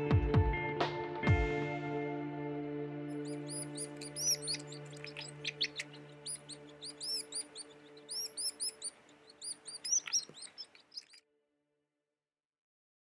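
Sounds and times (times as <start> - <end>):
soft held music chord: 0.6 - 10.8
birds chirping: 3.1 - 11.2.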